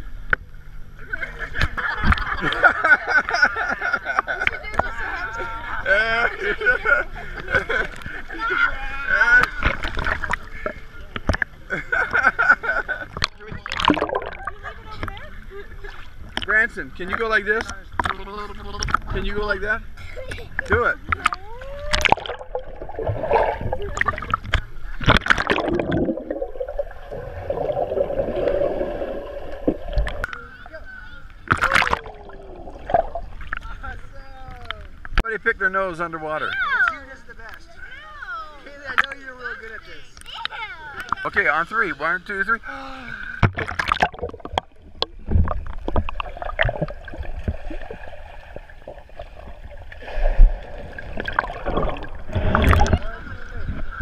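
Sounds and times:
muffled underwater gurgling: 13.1s - 16.4s, 20.6s - 35.0s, 43.4s - 54.0s.

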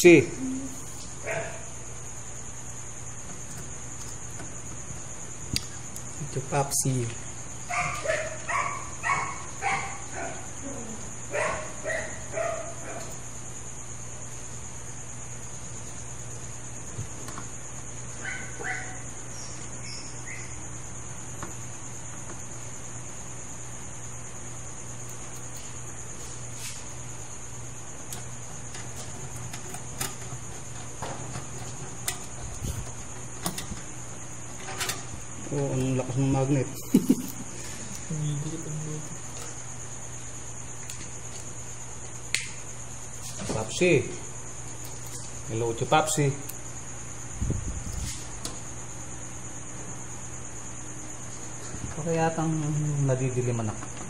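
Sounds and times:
insects chirring: 0.0s - 54.0s
dog barking: 1.2s - 1.7s, 7.7s - 10.5s, 11.3s - 13.2s, 18.2s - 19.0s.

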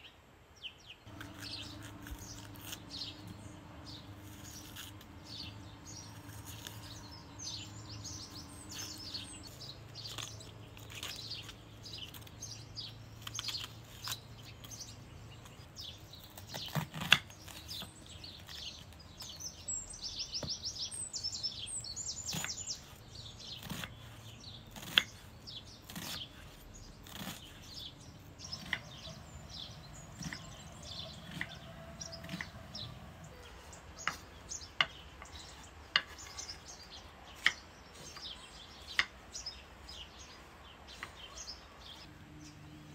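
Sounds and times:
small birds chirping: 0.0s - 42.9s.

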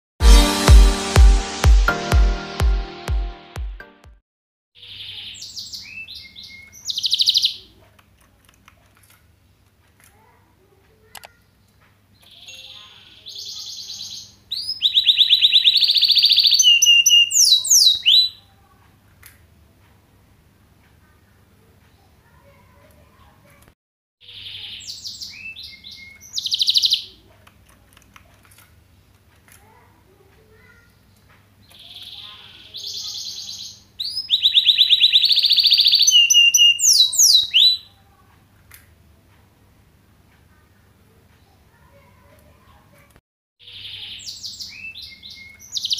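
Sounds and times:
canary singing: 4.8s - 7.8s, 12.2s - 18.4s, 24.2s - 27.2s, 31.6s - 38.0s, 43.6s - 45.9s.

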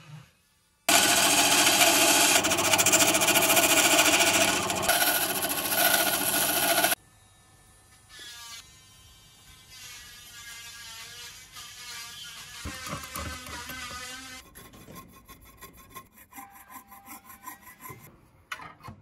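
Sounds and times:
small power tool rattling: 0.9s - 7.0s.

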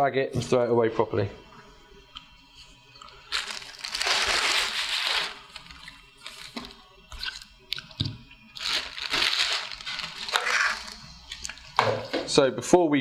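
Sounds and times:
plastic bag crinkling: 3.1s - 7.5s, 8.6s - 11.7s
granules pouring into a bag: 3.3s - 6.6s, 8.6s - 11.0s.

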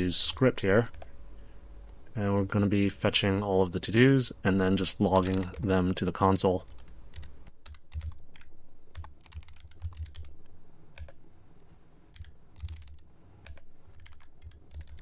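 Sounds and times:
computer keyboard typing: 0.9s - 1.1s, 5.1s - 5.8s, 6.6s - 10.4s, 11.0s - 11.2s, 12.1s - 15.0s.

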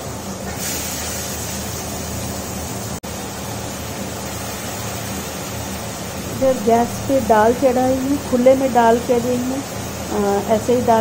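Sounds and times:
range hood fan humming: 0.0s - 11.0s.

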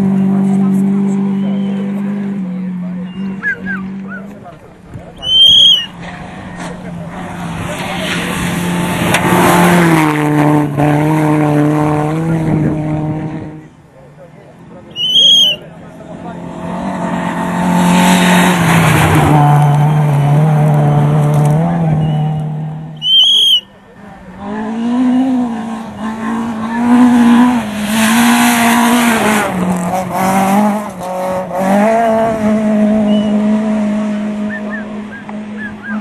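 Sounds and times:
rally car engine at high revs: 0.0s - 4.5s, 5.6s - 13.8s, 15.7s - 23.0s, 24.0s - 36.0s
rally car engine revs rising and falling: 5.5s - 13.7s, 15.8s - 23.0s, 24.1s - 36.0s.

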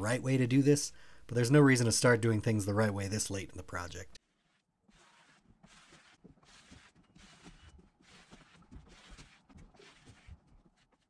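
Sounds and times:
plastic scraper scraping adhesive: 4.2s - 11.0s.

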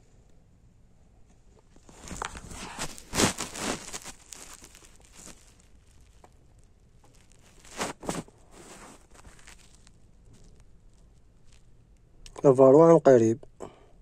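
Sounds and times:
rustling and crackling handling noise: 1.3s - 12.5s.

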